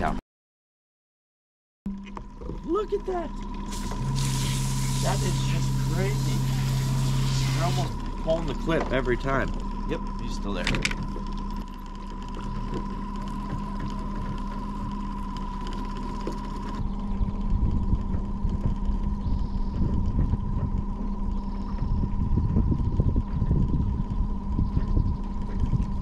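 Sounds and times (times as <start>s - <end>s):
boat motor humming: 1.9s - 26.0s
wind rumble on microphone: 10.6s - 26.0s.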